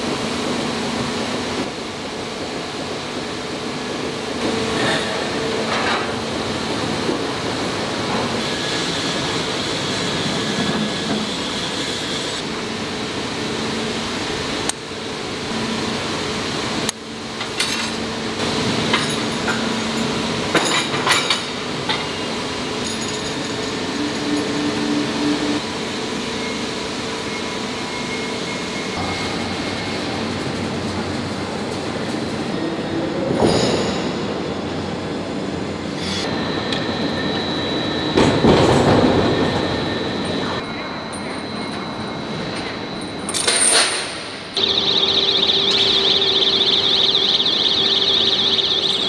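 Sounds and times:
machinery hum: 0.0 - 49.0.

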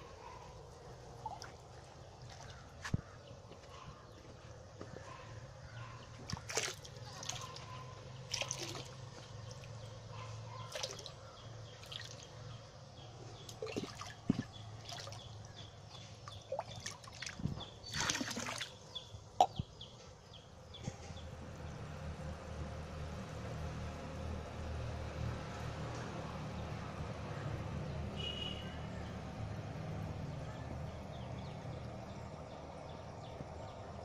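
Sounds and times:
water splashing and dripping: 1.2 - 2.7, 6.2 - 9.9, 10.6 - 12.4, 13.4 - 19.5.

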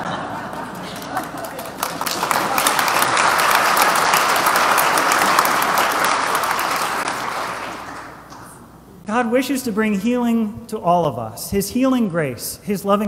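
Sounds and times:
crowd applauding: 0.0 - 8.6.

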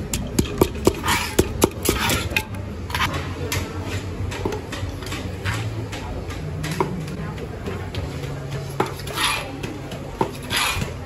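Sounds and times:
pestle pounding in mortar: 0.0 - 2.4.

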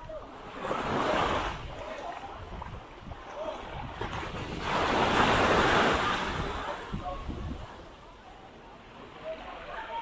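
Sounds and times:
wind rumbling on microphone: 0.0 - 8.0
small waves on sandy beach: 0.0 - 10.0.

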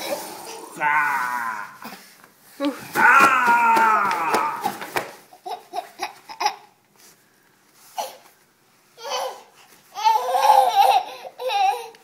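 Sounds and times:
toddler laughing and babbling: 9.0 - 12.0.

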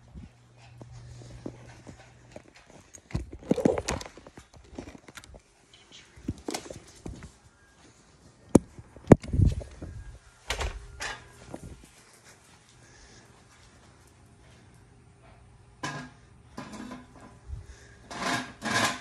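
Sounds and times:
footsteps: 0.0 - 10.2
handling noise: 0.8 - 7.4.

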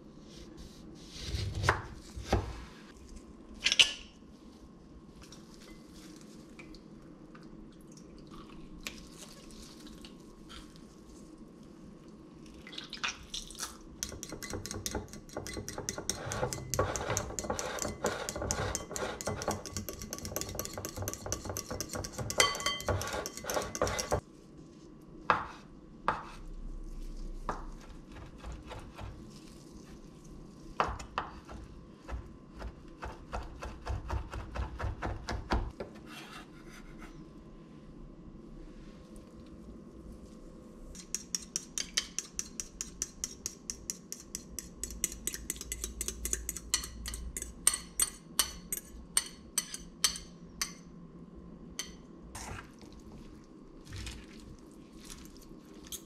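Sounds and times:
utensil beating mixture in bowl: 14.0 - 24.2, 40.9 - 50.8.

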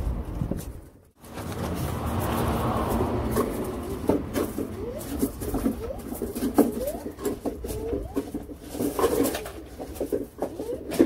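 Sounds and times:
paper towel squeaking on metal: 3.7 - 11.0.

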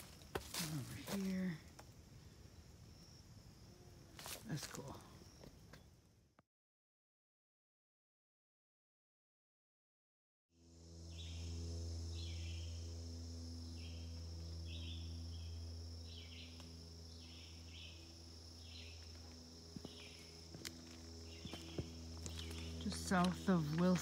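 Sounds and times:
insect chirping calls: 0.0 - 6.2, 10.6 - 24.0
insects buzzing drone: 0.0 - 6.4, 10.6 - 24.0
low hum: 10.6 - 24.0.

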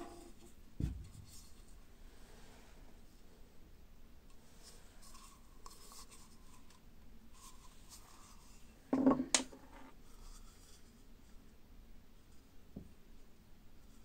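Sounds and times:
hands rubbing wooden cup: 4.3 - 9.1
wooden cup knocking: 8.9 - 9.9.

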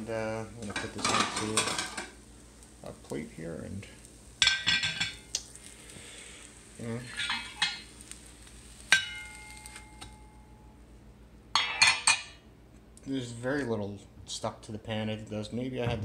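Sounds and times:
glass pan scraping stove grate: 7.0 - 7.9.

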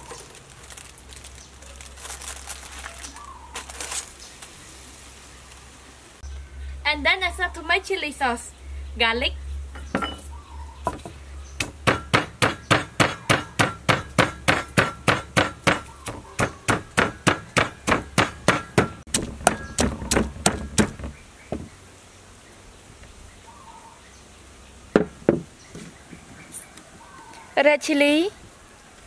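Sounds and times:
pestle pounding in mortar: 10.9 - 21.7
single knocks: 25.0 - 25.5.

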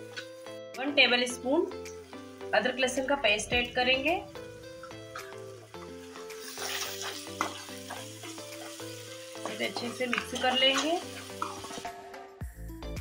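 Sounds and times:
sizzling in hot oil: 0.0 - 12.2
background music: 0.0 - 13.0
spoon scraping a pan: 6.4 - 11.9.

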